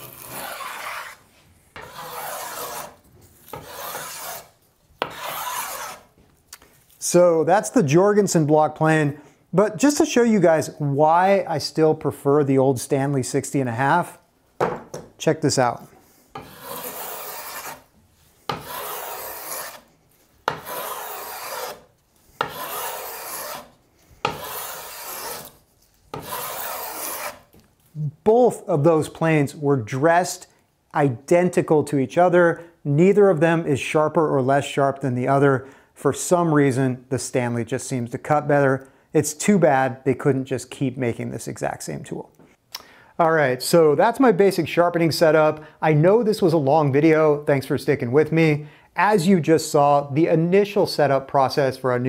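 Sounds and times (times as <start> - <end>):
block plane shaving wood: 0.0 - 1.2, 1.8 - 6.1, 16.3 - 17.9, 18.5 - 19.9, 20.5 - 27.5.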